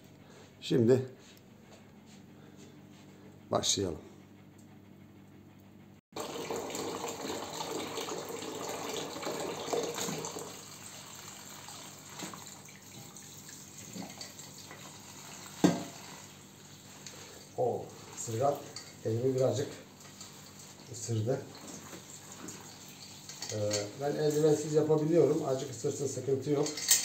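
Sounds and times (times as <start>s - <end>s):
tap water running into colander: 6.2s - 26.1s.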